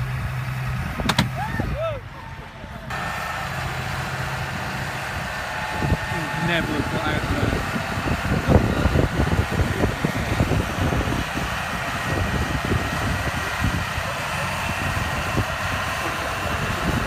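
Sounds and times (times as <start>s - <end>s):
tractor diesel engine running: 0.0s - 17.0s
wind buffeting microphone: 4.5s - 17.0s.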